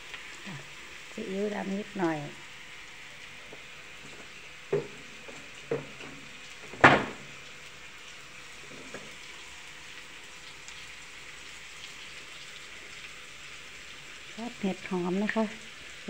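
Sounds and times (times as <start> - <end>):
vegetables sizzling in a wok: 0.0 - 16.0
knocks: 6.8 - 7.2.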